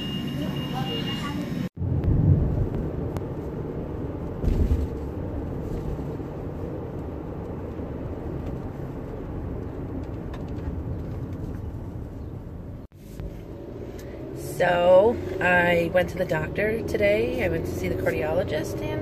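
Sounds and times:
car road and engine rumble: 0:00.0 - 0:19.0
low thump: 0:04.4 - 0:05.1.

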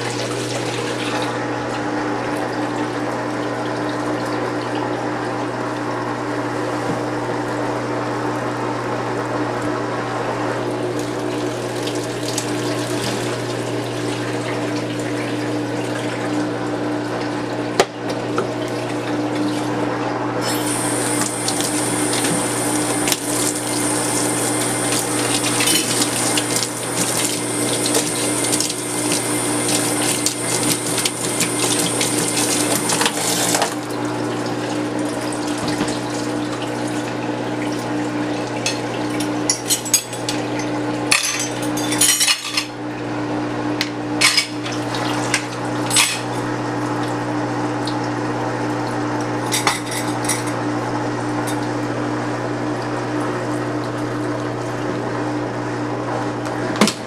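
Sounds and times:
hose water splashing into tub: 0:00.0 - 0:05.8, 0:10.9 - 0:17.4, 0:20.4 - 0:39.4
washer humming: 0:00.0 - 0:57.0.

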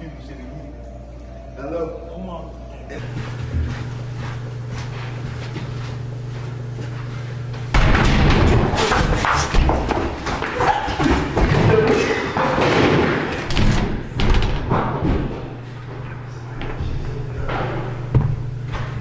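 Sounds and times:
running footsteps and thuds: 0:03.0 - 0:15.6.

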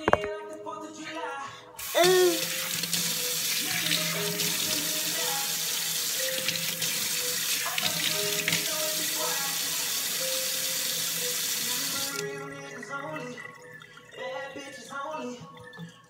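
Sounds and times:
tap water running into sink: 0:01.8 - 0:12.3.

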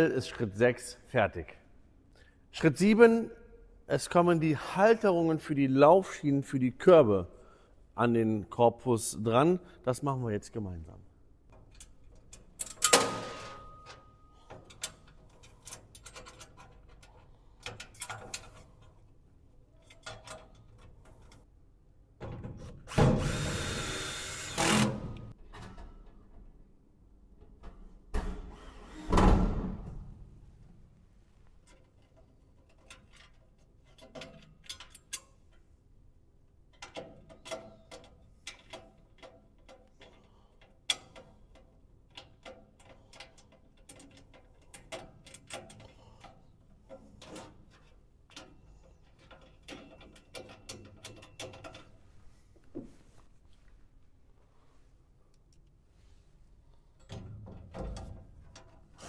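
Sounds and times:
cordless drill driving screws: 0:23.2 - 0:24.9.

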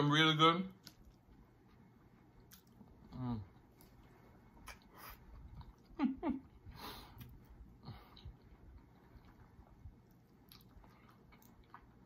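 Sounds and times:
man chewing: 0:00.8 - 0:12.0.

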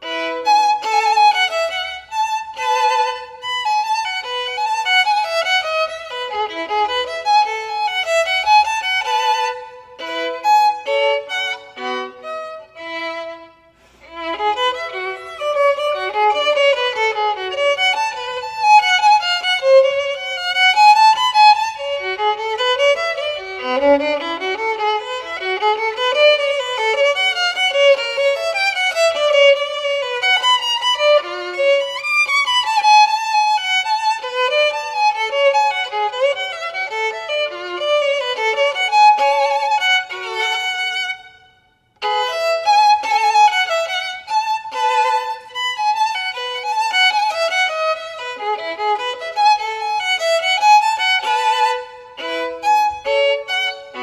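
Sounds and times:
solo violin playing: 0:00.0 - 0:54.0.

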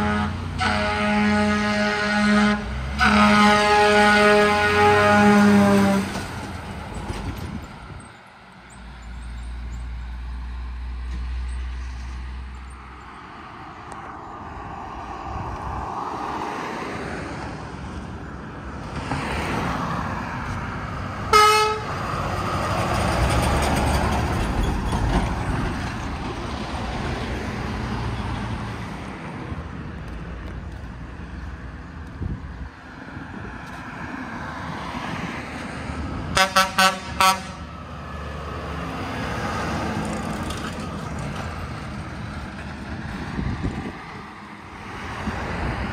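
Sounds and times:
traffic passing: 0:00.0 - 0:45.9
short horn toot: 0:21.3 - 0:21.9
truck engine drone: 0:35.6 - 0:45.9.

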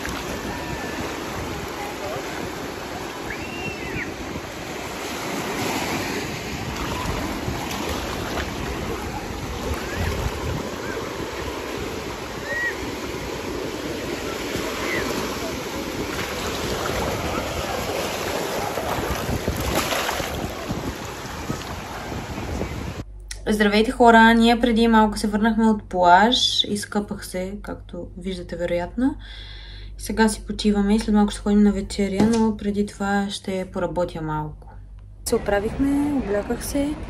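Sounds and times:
small waves washing on sand: 0:00.0 - 0:23.0
wind on microphone: 0:00.0 - 0:23.0.

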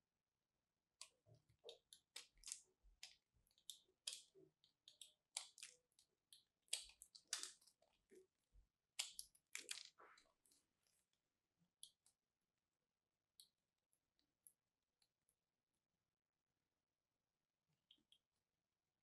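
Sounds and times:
knife shaving soap: 0:00.9 - 0:16.0.

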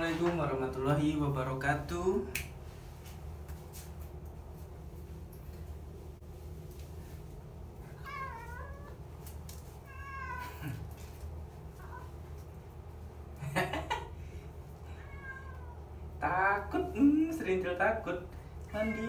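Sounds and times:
cat meowing: 0:08.0 - 0:09.0, 0:09.8 - 0:10.8, 0:14.9 - 0:15.8.

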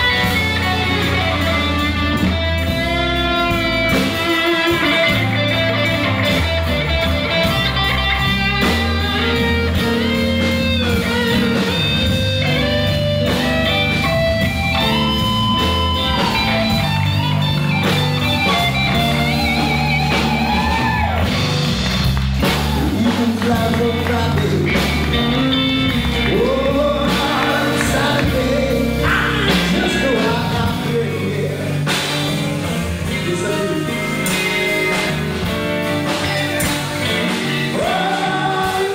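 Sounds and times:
live rock band playing: 0:00.0 - 0:38.9
lead vocal singing: 0:22.8 - 0:32.2, 0:33.0 - 0:35.5, 0:37.3 - 0:38.9.

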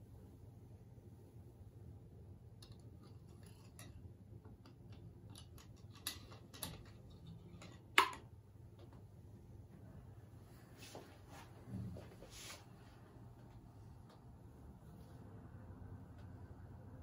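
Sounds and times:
clicks and taps of brass fittings: 0:03.5 - 0:08.3.

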